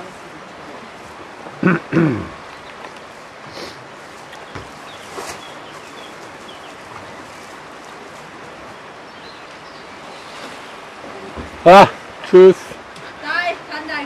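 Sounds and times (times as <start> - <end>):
river water rushing over riffle: 0.0 - 14.0
soft rustle: 2.6 - 11.4.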